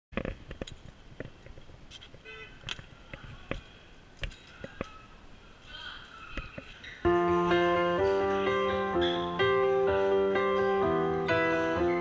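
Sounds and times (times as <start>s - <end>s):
faint voices: 2.5s - 9.4s.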